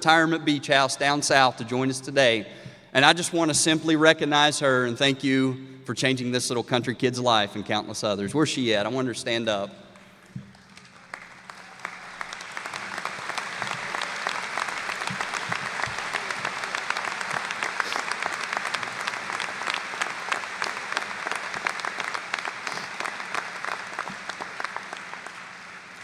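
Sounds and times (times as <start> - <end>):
audience applauding: 10.0 - 26.0.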